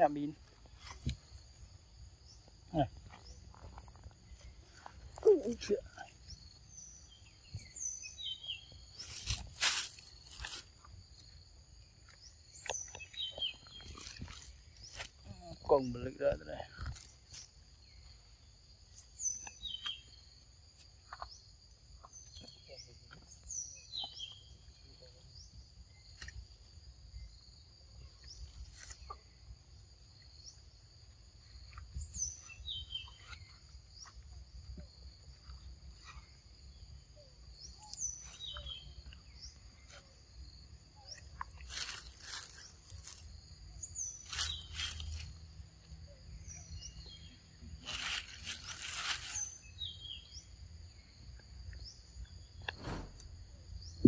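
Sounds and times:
loud rustling or crunching: 8.9 - 11.3, 13.1 - 15.8, 41.6 - 43.3, 44.1 - 45.4, 47.7 - 49.8.

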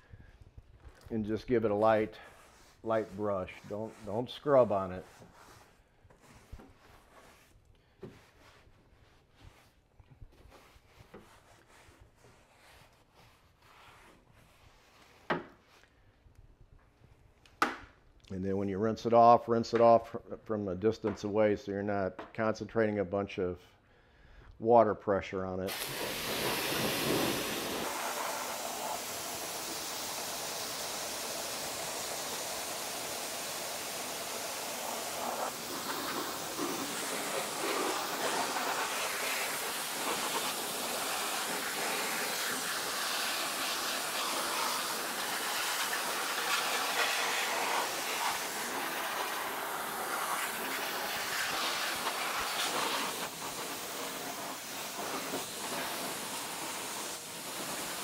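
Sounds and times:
power washer spraying water: 25.7 - 58.0.

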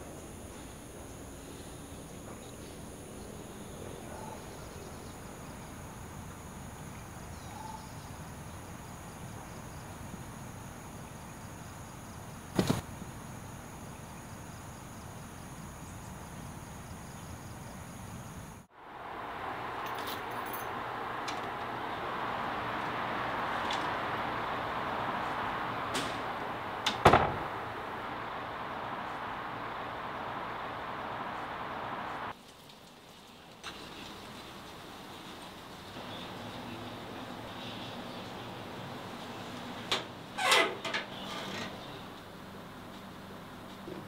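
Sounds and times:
high insect drone: 0.0 - 32.3
steady rushing hiss: 0.0 - 40.5
sharp loud knock: 27.0 - 27.5.

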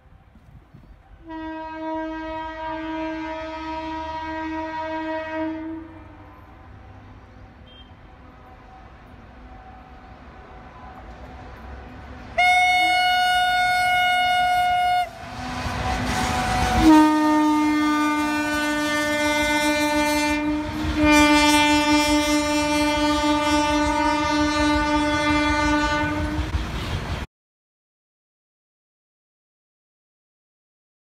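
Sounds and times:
locomotive horn blasts: 1.2 - 6.5, 7.6 - 8.6, 12.3 - 27.1.

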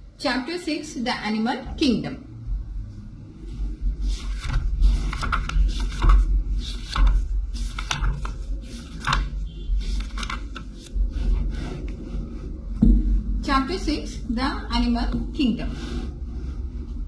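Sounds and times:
paper pages flipping: 4.0 - 12.1.

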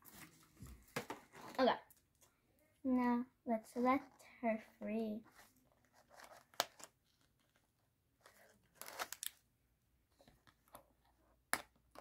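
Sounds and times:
plastic packaging crackling: 8.7 - 9.4.

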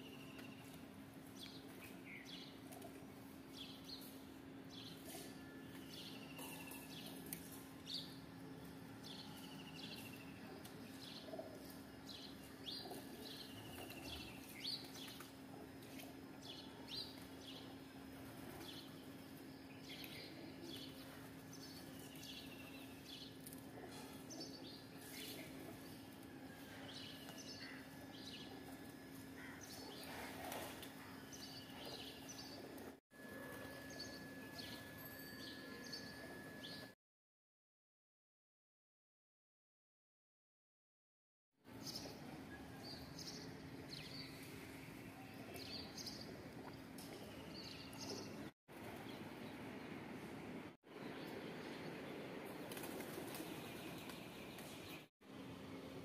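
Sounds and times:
outdoor background noise: 0.0 - 37.0, 41.6 - 56.0
birds chirping: 3.5 - 32.9, 42.8 - 49.6.

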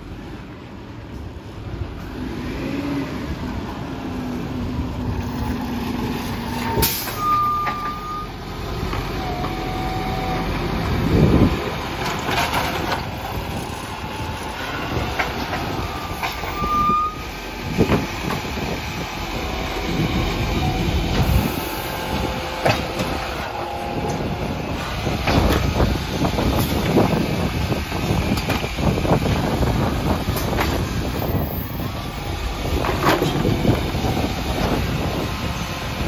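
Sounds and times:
garbage truck diesel engine: 0.0 - 36.0
air brake hiss: 6.8 - 7.2.

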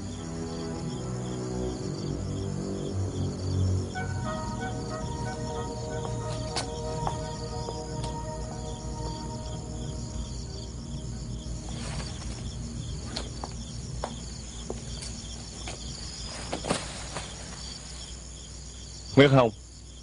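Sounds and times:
crickets chirping: 0.0 - 20.0
footsteps on paving: 6.0 - 8.1, 13.1 - 17.6.

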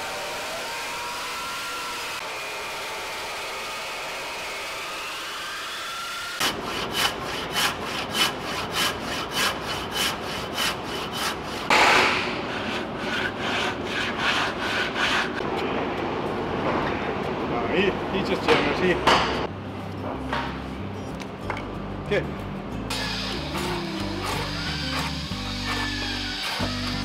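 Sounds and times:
electric circular saw running: 0.0 - 6.6, 22.9 - 27.0
handsaw rasping through wood: 6.4 - 11.7, 12.5 - 15.4, 23.6 - 27.0.

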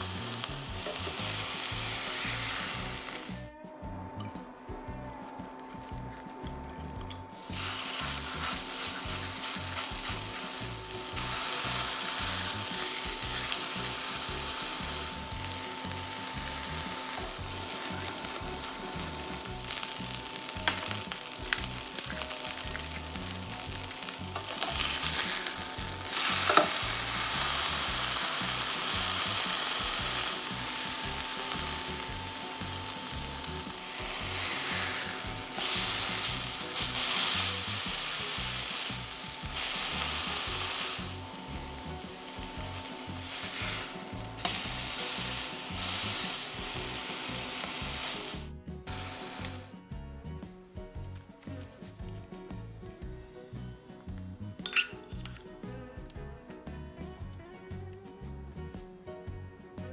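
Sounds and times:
food sizzling in frying pan: 0.0 - 3.5, 4.6 - 49.7.

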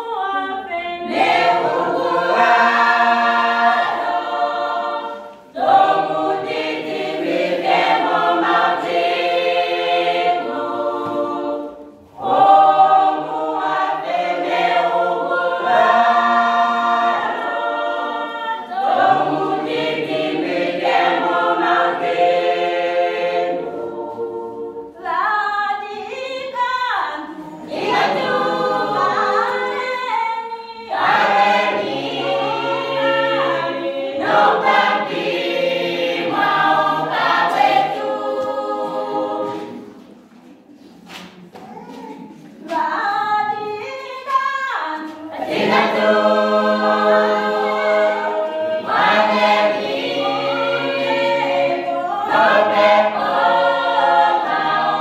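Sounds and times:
choir singing unaccompanied: 0.0 - 55.0.

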